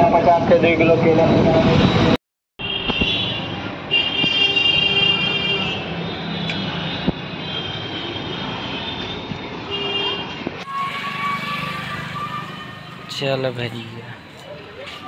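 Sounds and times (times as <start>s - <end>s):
passing vehicles: 0.0s - 15.0s
held high tone: 10.6s - 13.4s.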